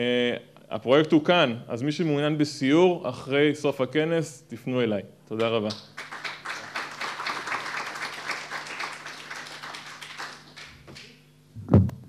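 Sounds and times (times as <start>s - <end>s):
audience applauding: 5.7s - 11.2s
microphone handling thump: 11.6s - 12.0s.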